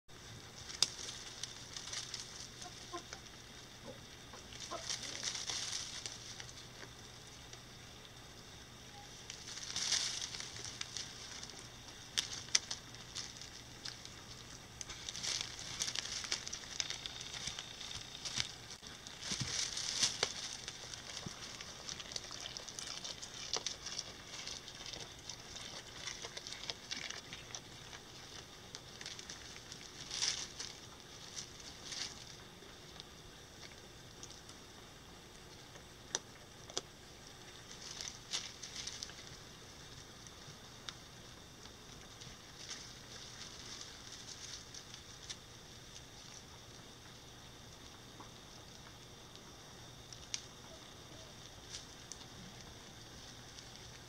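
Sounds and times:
rustling and crackling brush: 0:00.1 - 0:07.8, 0:08.4 - 0:34.7, 0:36.7 - 0:54.0
twigs snapping: 0:00.6 - 0:03.2, 0:04.3 - 0:07.1, 0:09.2 - 0:34.6, 0:37.6 - 0:39.4, 0:50.1 - 0:50.6.

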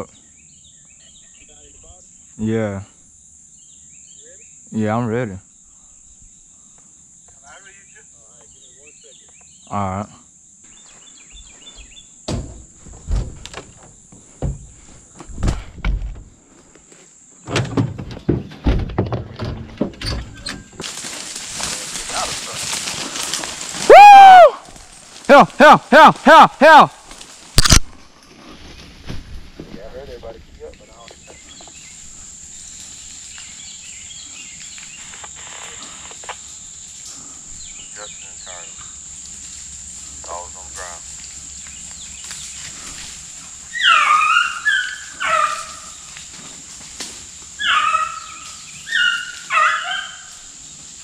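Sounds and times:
bird chirps: 0:00.0 - 0:02.4, 0:07.6 - 0:09.8, 0:10.6 - 0:12.2
insects droning: 0:00.0 - 0:51.0
sharp click: 0:27.6 - 0:28.0.

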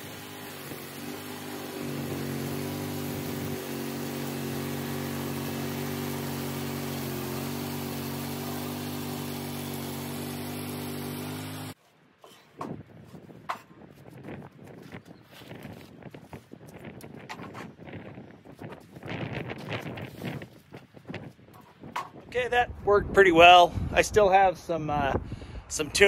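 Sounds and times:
gasoline engine running: 0:00.0 - 0:11.8
band saw cutting log: 0:00.0 - 0:12.6
wooden knocks: 0:13.5 - 0:13.8, 0:21.9 - 0:22.3.

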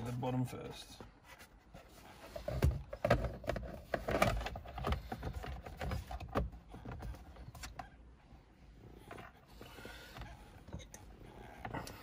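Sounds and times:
plastic scraping and rustling: 0:01.1 - 0:07.9.

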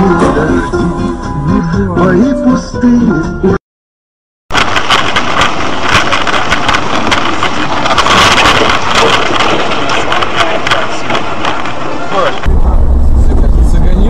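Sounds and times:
heavy rain on a car: 0:04.5 - 0:12.5.

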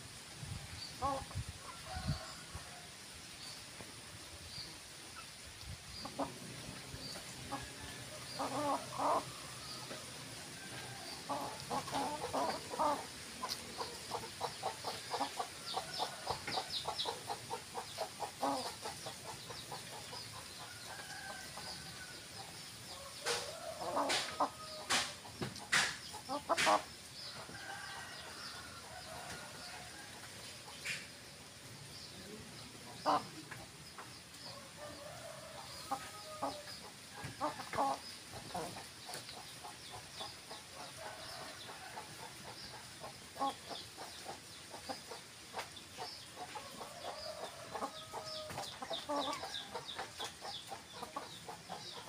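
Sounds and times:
hens clucking: 0:06.0 - 0:21.8, 0:22.4 - 0:28.4, 0:32.2 - 0:52.0.

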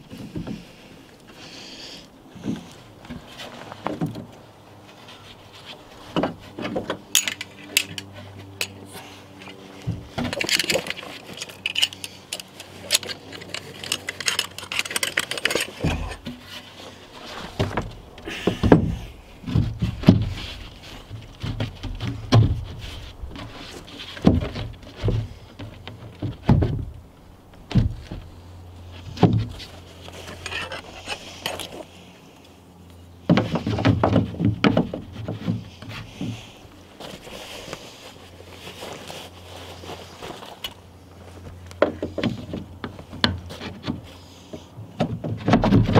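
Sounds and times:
heavy wooden thumps: 0:17.3 - 0:23.6.

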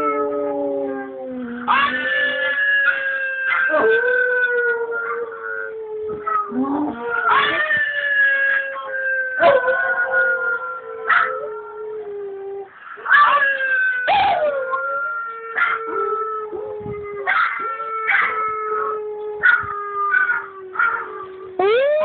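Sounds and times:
small dog howling: 0:00.0 - 0:12.1, 0:13.0 - 0:22.0
recorded dog howls from laptop: 0:07.3 - 0:07.6.

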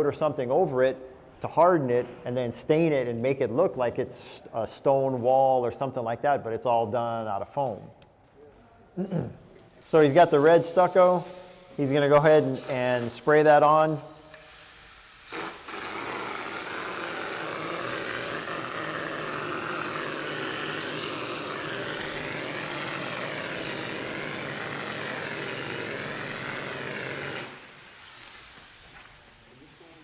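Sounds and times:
spray gun hissing: 0:09.8 - 0:30.0.

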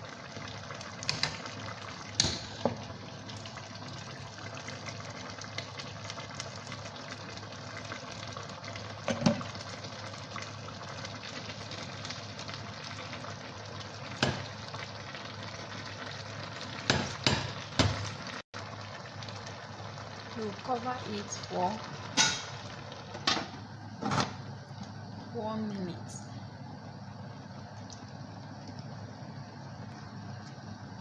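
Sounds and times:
soup pot sizzling: 0:00.0 - 0:31.0.

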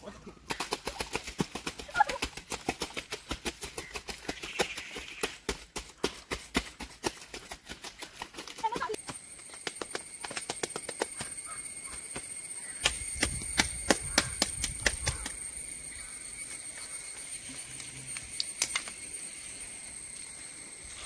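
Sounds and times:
dry sticks clicking and crackling: 0:17.8 - 0:19.0.

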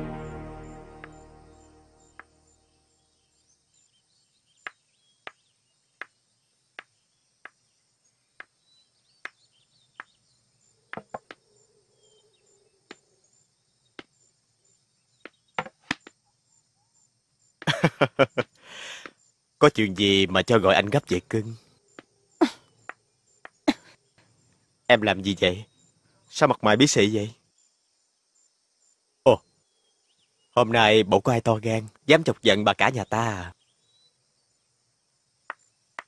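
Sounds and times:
music: 0:00.0 - 0:02.6.

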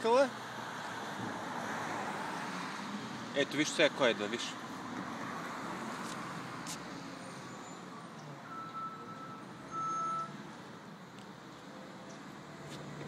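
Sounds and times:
reversing alarm beeps: 0:08.4 - 0:10.4.

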